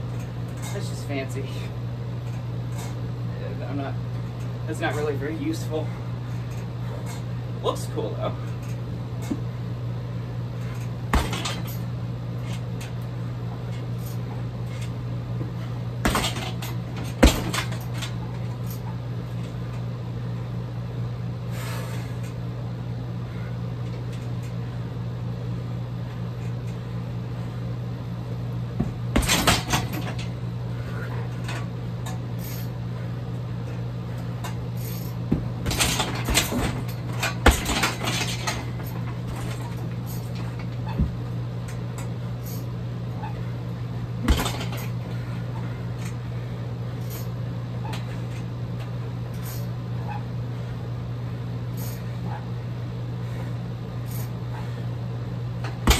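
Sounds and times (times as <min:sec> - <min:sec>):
low hum: 0:00.0 - 0:55.9
metallic rattles: 0:10.6 - 0:13.0, 0:34.4 - 0:41.0, 0:44.2 - 0:45.2
kicks hitting heavy bag: 0:11.0 - 0:11.7, 0:15.4 - 0:18.0, 0:28.8 - 0:30.2, 0:35.2 - 0:40.0, 0:40.8 - 0:41.3, 0:44.2 - 0:45.0.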